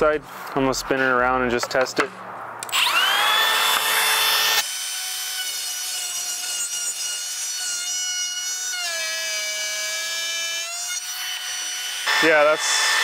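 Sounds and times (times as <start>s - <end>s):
router motor whining: 2.6s - 13.0s
router bit rasping into wood: 2.7s - 13.0s.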